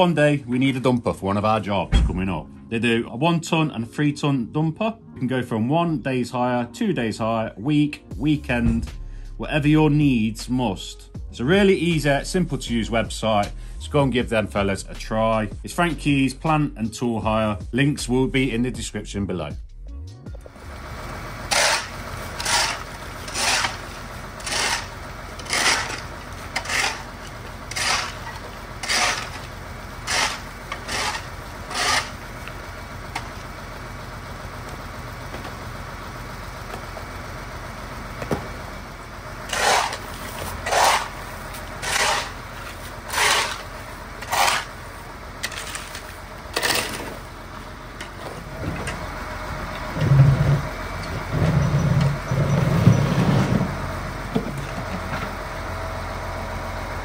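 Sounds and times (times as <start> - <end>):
low engine hum: 19.9 - 57.0
rhythmic scraping: 21.5 - 32.3, 39.5 - 44.8.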